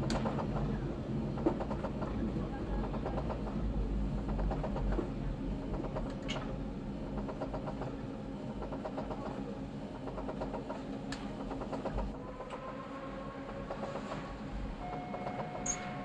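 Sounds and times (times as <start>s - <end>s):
subway train rumble: 0.0s - 16.0s
rail clicks: 10.0s - 16.0s.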